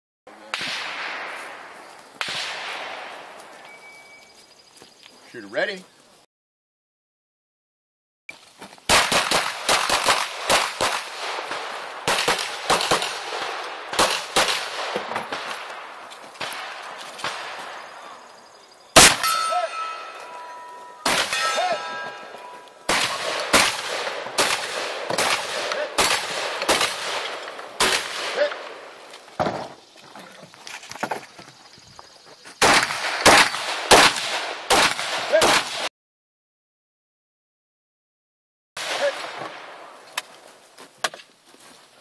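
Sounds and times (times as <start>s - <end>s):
gunshots: 0.4s - 3.4s, 8.9s - 18.2s, 19.0s - 20.4s, 21.0s - 28.9s, 32.6s - 35.9s, 38.8s - 39.8s
steel targets clanging: 19.0s - 22.9s.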